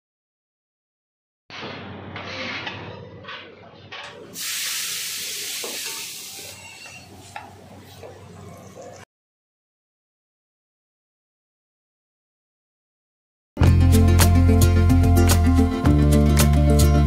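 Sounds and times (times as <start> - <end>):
griddle sizzling: 4.4 - 7.4.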